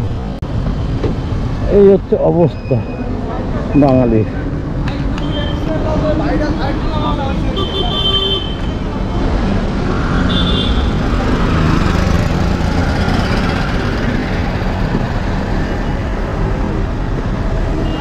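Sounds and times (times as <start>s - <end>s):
wind rumble on microphone: 13.0s - 17.8s.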